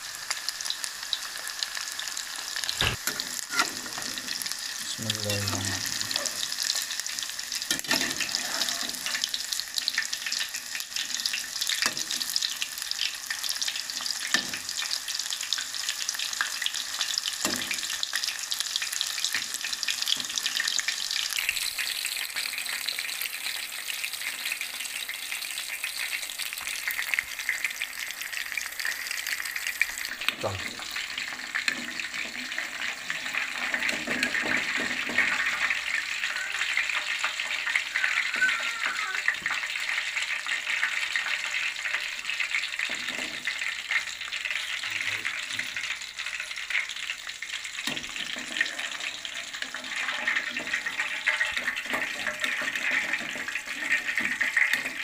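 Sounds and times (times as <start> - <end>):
deep-frying crackling sizzle: 0.0 - 55.0.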